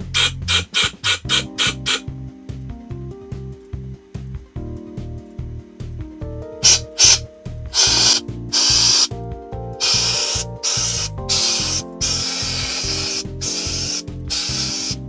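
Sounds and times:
background music with beat: 0.0 - 15.0
air vacuum hissing: 0.1 - 2.0, 6.6 - 9.1, 9.8 - 15.0
grains rattling in hose: 9.8 - 15.0.

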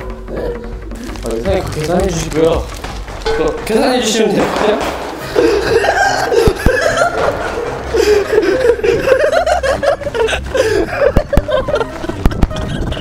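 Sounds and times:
man chuckling: 5.3 - 13.0.

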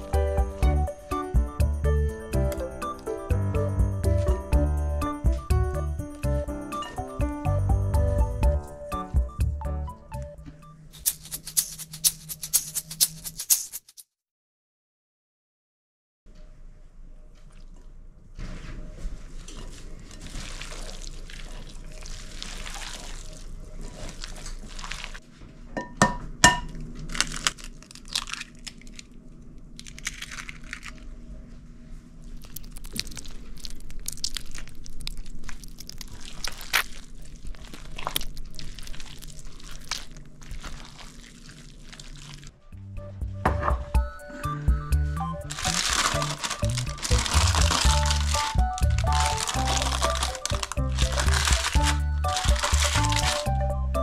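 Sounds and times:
hands squishing wet meat mixture: 19.3 - 25.2, 32.3 - 42.6, 45.4 - 53.7.

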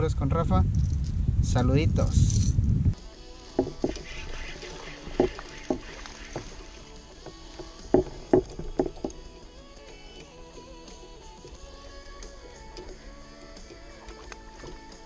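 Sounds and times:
hollow knocks on plastic hull: 3.6 - 4.1, 5.0 - 6.5, 7.9 - 9.2.

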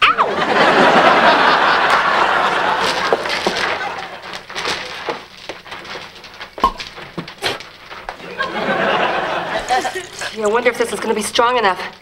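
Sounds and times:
audience laughter: 0.1 - 4.4, 8.1 - 10.4.

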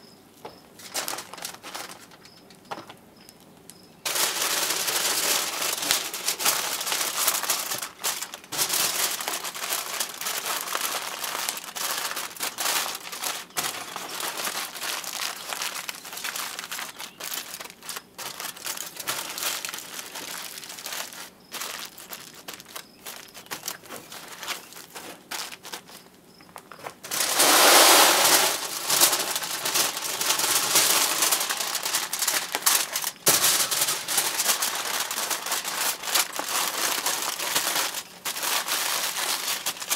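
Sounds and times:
wood fire crackling and popping: 26.5 - 39.9.

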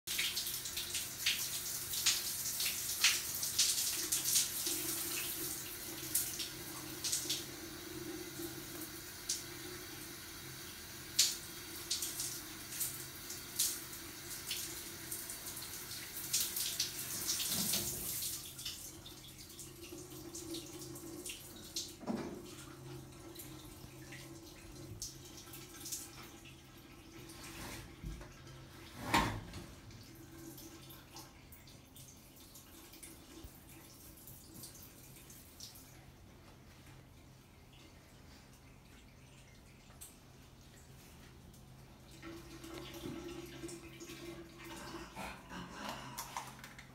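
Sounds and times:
shower spraying on tiles: 0.1 - 18.8
water drips: 29.9 - 46.9.

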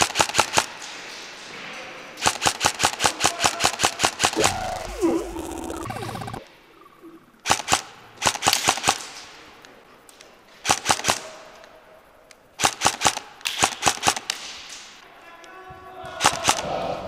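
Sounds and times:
airsoft rifle firing bursts: 2.2 - 5.1, 7.4 - 9.1, 12.6 - 14.3.

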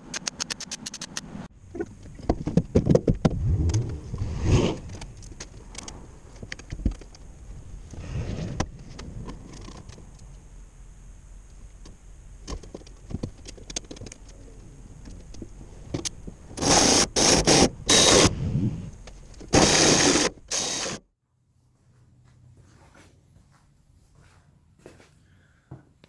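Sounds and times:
power tool on sheet metal: 16.6 - 18.4, 19.5 - 21.0.

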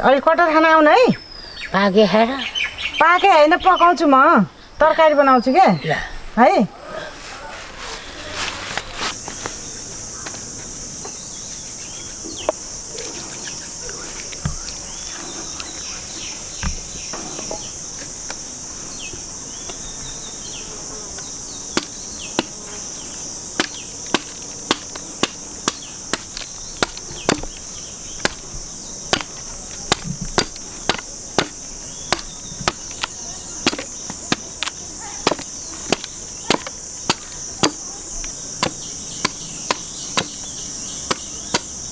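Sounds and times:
insects buzzing: 0.0 - 41.9
knife chopping fruit rind: 23.6 - 27.6, 29.1 - 37.9, 38.6 - 40.4, 41.0 - 41.8.

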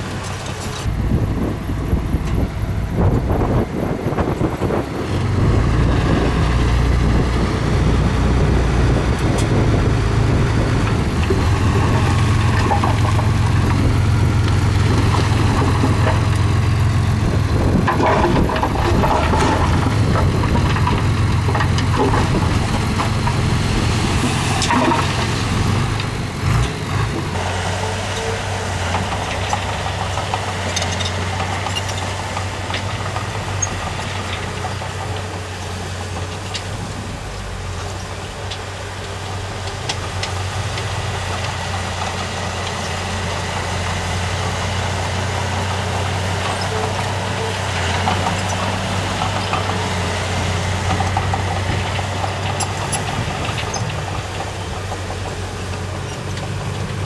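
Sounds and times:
heavy diesel engine running: 0.0 - 57.0
machinery clattering: 8.0 - 37.0.

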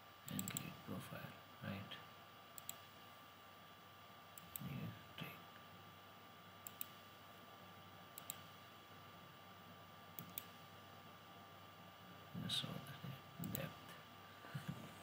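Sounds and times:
faint electrical hum: 0.0 - 15.0
computer mouse clicking: 0.3 - 0.8, 2.6 - 2.9, 4.4 - 4.7, 6.6 - 7.0, 8.2 - 8.6, 10.2 - 10.6, 13.4 - 13.7.

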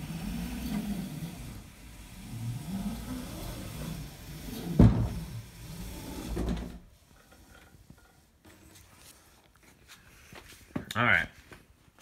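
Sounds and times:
low rumbling and rattling: 0.0 - 8.1
kayak thumping onto floor: 4.8 - 5.2.

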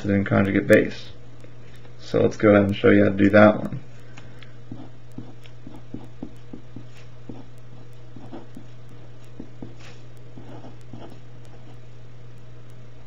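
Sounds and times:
low steady hum: 0.0 - 13.0
pen scratching on paper: 4.7 - 11.8.

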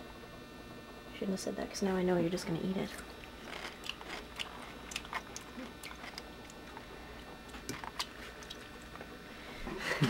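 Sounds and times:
person chewing crunchy pickle: 3.0 - 9.2.

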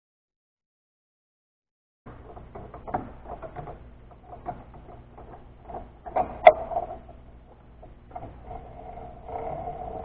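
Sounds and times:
low motor hum: 2.1 - 10.0.

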